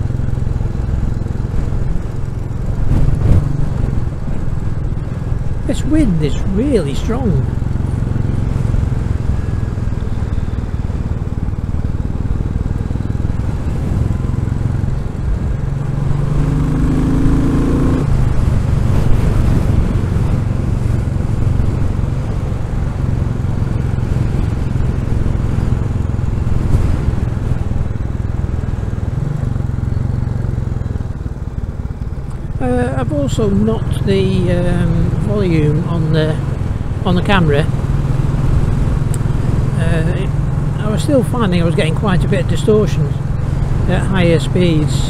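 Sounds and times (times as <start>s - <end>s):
motorcycle engine accelerating: 0.0s - 45.0s
wind buffeting microphone: 1.5s - 5.7s, 11.3s - 30.2s.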